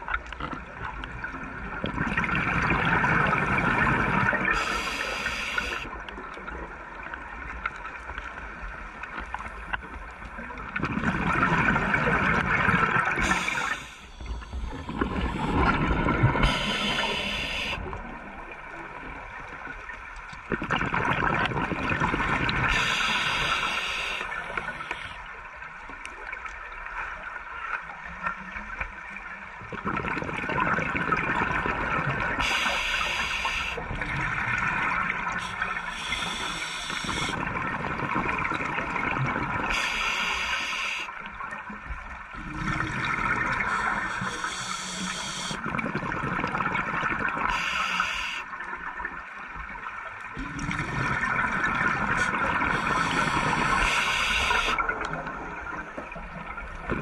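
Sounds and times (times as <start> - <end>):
gurgling exhaled bubbles: 0.0 - 7.1, 10.2 - 19.8, 20.4 - 25.2, 29.6 - 40.4, 41.4 - 47.8, 48.6 - 57.0
regulator inhale hiss: 4.5 - 5.9, 13.2 - 15.8, 16.4 - 17.9, 22.7 - 25.2, 32.4 - 33.8, 35.3 - 37.4, 39.7 - 41.2, 43.6 - 45.6, 47.5 - 48.5, 52.2 - 54.9.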